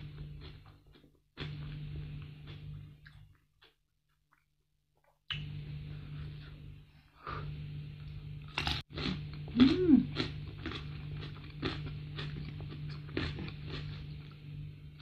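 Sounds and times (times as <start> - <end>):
steady low hum: 0.0 - 3.8, 5.3 - 15.0
crunchy chewing: 8.5 - 14.4.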